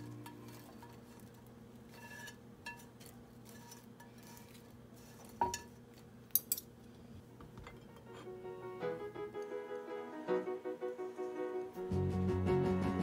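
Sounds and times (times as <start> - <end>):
chopsticks scraping a frying pan: 0.0 - 5.7.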